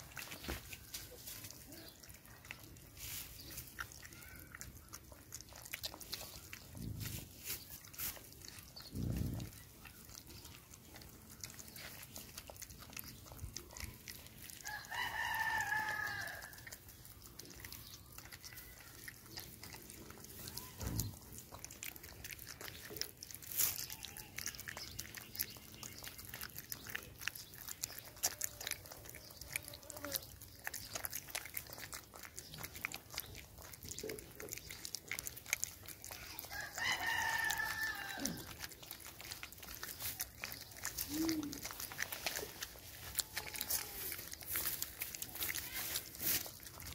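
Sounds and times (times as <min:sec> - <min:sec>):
puppy chewing and licking: 0:00.0 - 0:46.9
rooster crowing: 0:14.6 - 0:16.5, 0:36.5 - 0:38.4.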